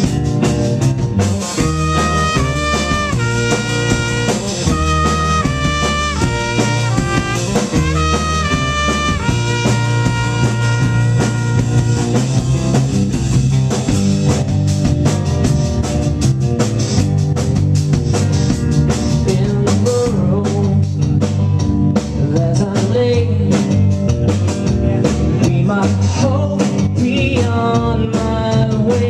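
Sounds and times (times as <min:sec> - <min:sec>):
drums with cymbal crashes: 0:00.0 - 0:29.0
live rock band: 0:00.0 - 0:29.0
trumpet playing lead line: 0:01.6 - 0:12.9.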